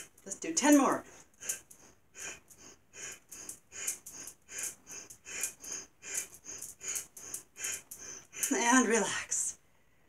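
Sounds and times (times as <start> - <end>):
woman forceful nasal breathing: 1.0 - 8.9.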